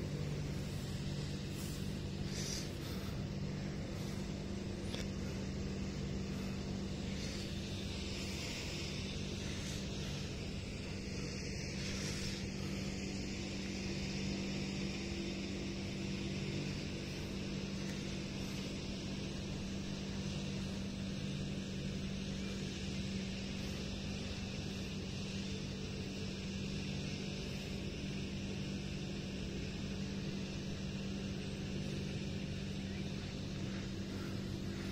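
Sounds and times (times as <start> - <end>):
grass trimmer engine drone: 0.0 - 34.9.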